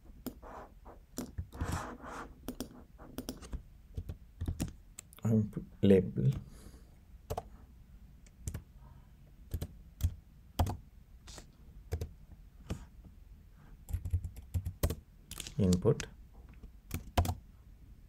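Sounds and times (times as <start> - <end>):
typing on computer keyboard: 2.5 - 4.8, 9.5 - 10.8, 13.9 - 15.0, 16.9 - 17.4.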